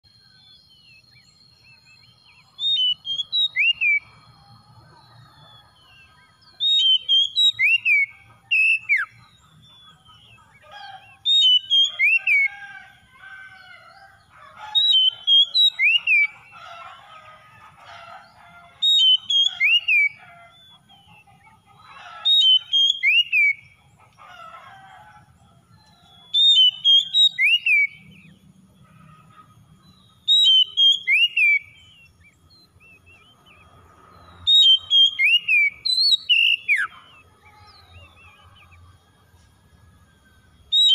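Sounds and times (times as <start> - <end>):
bird whistling song: 0.2 - 4.4, 5.3 - 12.8, 14.6 - 17.2, 17.8 - 23.8, 25.8 - 28.4, 29.8 - 33.6, 34.3 - 38.8, 40.6 - 40.9.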